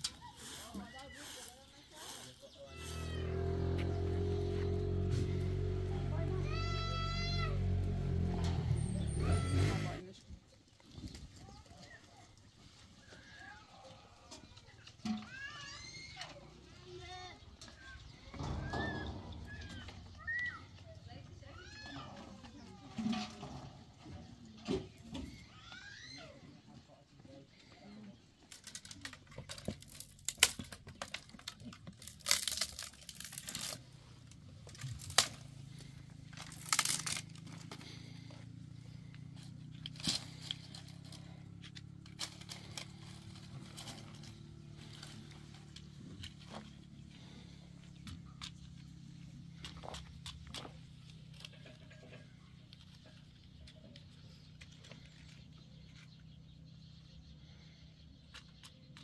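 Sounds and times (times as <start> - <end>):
twigs snapping: 28.5 - 33.8, 34.7 - 35.6, 36.3 - 37.8
dry twigs crackling rustle: 28.5 - 38.3, 39.0 - 47.5.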